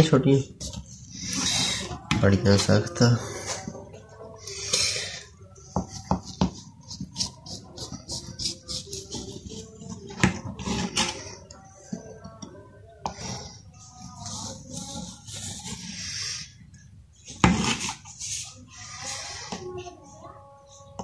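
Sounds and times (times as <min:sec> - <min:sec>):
knife scraping through sweet: 0:00.7 - 0:11.6, 0:13.1 - 0:16.8.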